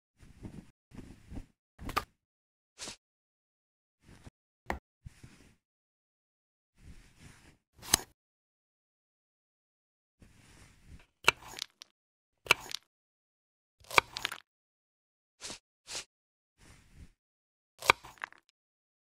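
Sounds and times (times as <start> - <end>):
knife scraping board: 15.4 - 17.0.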